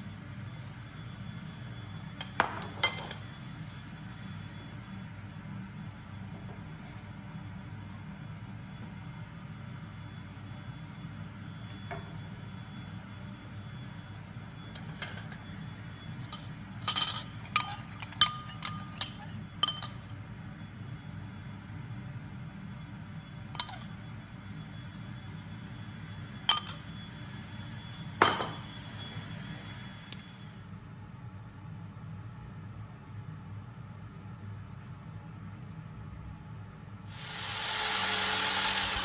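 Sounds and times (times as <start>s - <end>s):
steady low hum: 0.0s - 39.0s
metal utensils clinking on plate: 16.9s - 20.1s.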